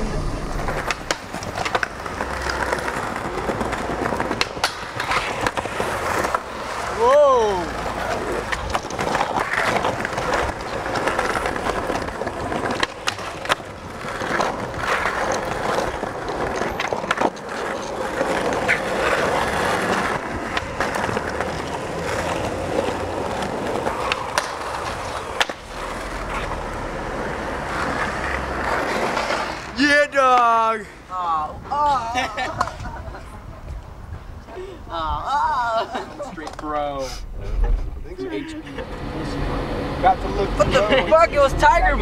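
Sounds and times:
skateboard wheels rolling on pavement: 0.0 - 42.0
skateboard sharp clacks: 0.6 - 6.8, 7.9 - 29.7.

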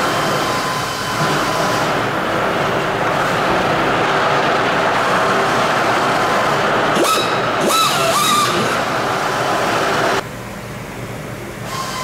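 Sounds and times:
workshop machinery noise: 0.0 - 12.0.

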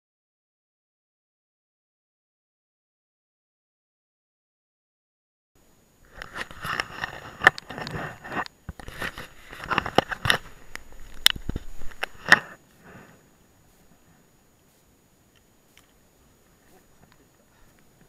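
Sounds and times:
handling noise on camera microphone: 6.0 - 16.0.

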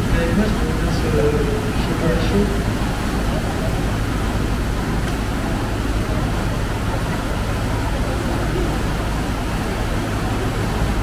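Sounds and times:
low steady hum: 0.0 - 11.0
water rushing through sluices: 0.0 - 11.0.

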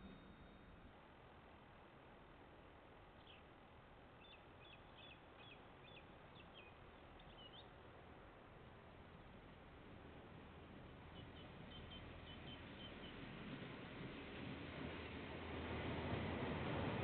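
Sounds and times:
small bird chirping: 4.2 - 7.7.

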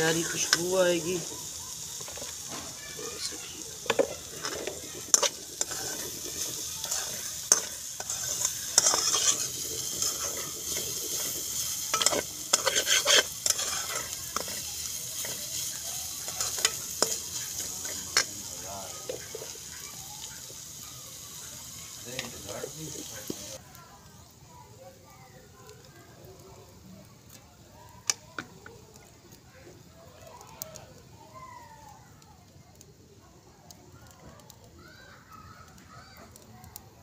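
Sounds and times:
food sizzling in oil: 0.0 - 37.0
metal spatula scraping pan: 2.0 - 18.3.

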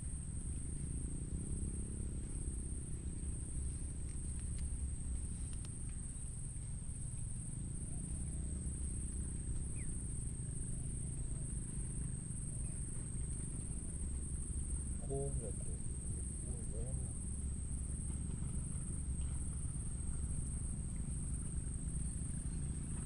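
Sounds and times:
insects trilling: 0.0 - 23.0
faint clicks: 4.0 - 6.7.

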